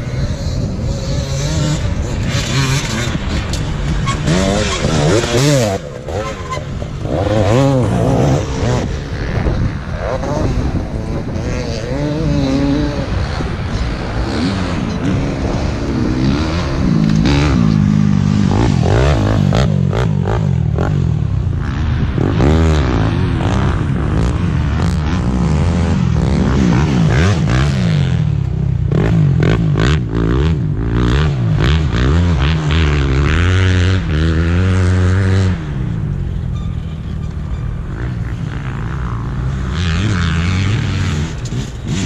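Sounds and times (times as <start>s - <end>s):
motorcycle engines revving: 0.0s - 42.0s
clatter: 1.1s - 8.8s, 38.0s - 42.0s.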